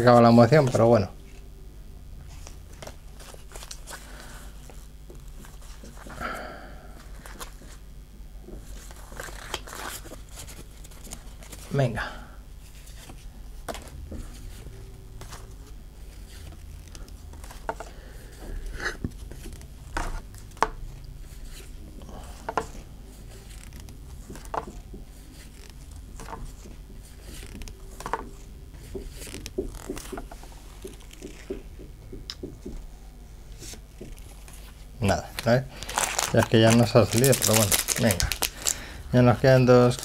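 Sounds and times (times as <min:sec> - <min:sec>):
steady low hum: 0:00.0 - 0:40.0
cards clicking and sliding: 0:16.1 - 0:17.9, 0:23.4 - 0:28.4, 0:29.0 - 0:31.5.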